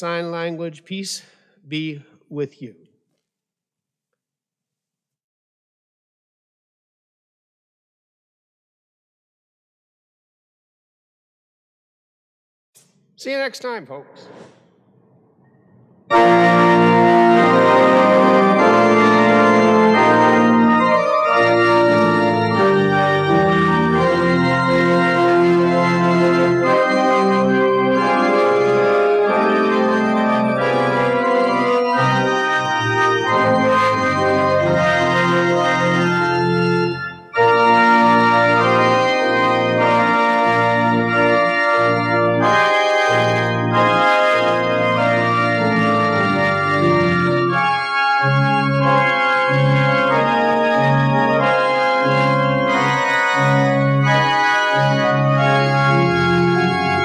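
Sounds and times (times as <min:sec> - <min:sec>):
church organ playing: 0:00.0 - 0:01.2, 0:16.1 - 0:57.0.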